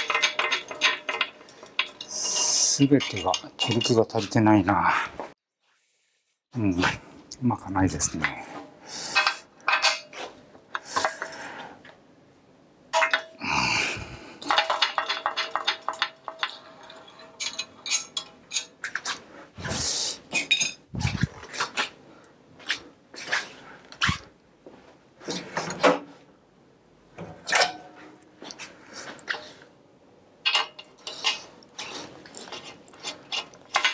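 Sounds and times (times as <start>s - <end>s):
metal hand tools clanking: 0.0s - 4.5s, 14.4s - 19.1s, 30.4s - 33.9s.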